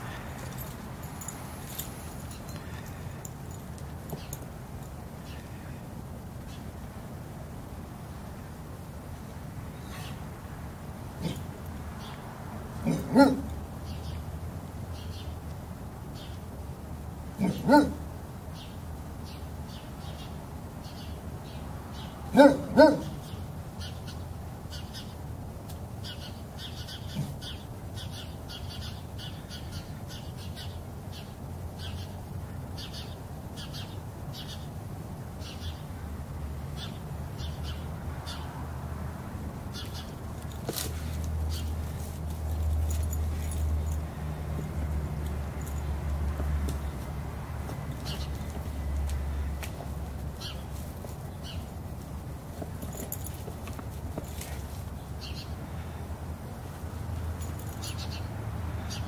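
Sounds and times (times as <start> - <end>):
puppy barking: 12.8 - 13.6, 17.4 - 18.1, 22.3 - 23.2.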